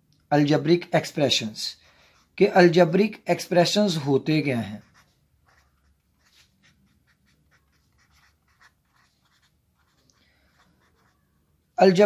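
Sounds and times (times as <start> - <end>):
pen scratching on paper: 4.7 - 11.4.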